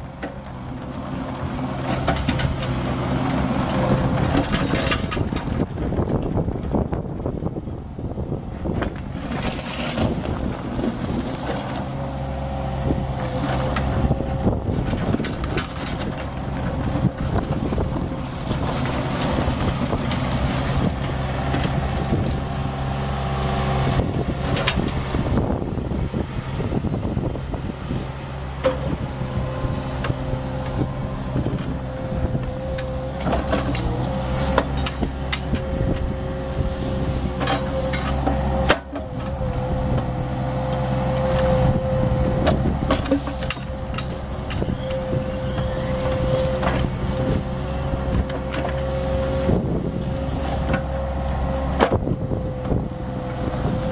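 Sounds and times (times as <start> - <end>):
diesel engine running: 0.0 - 53.9
hydraulic whine: 19.3 - 53.9.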